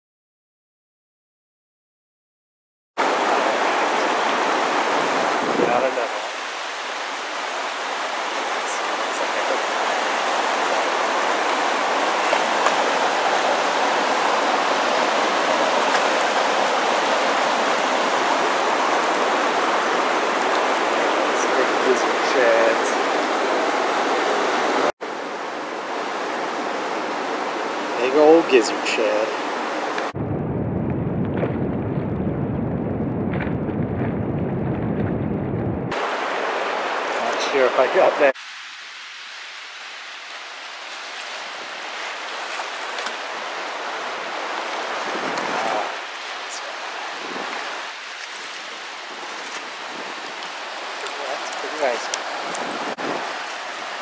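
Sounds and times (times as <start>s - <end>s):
fast river rushing: 3.0s - 30.2s, 35.9s - 54.0s
wind buffeting microphone: 3.1s - 6.0s, 29.6s - 36.0s, 43.2s - 53.9s.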